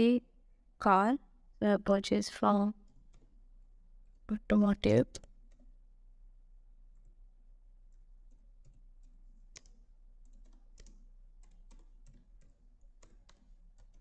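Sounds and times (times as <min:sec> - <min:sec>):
faint keyboard typing: 0:02.8 - 0:03.5, 0:06.8 - 0:14.0.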